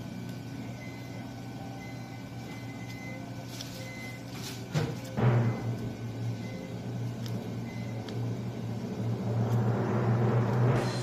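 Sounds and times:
machinery hum: 0.0s - 11.0s
loud noise: 8.8s - 11.0s.

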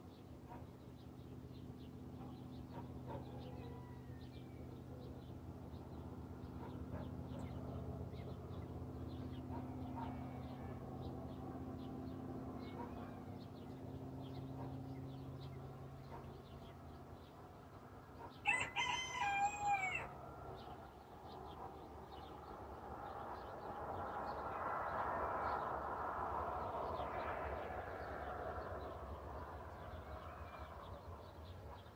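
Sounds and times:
small birds chirping: 0.0s - 19.4s
rooster crowing: 3.3s - 4.4s, 18.4s - 20.2s.

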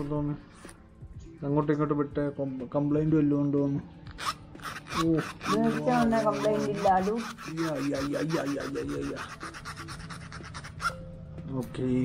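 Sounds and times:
fingers rubbing leather wallet: 4.1s - 11.0s.

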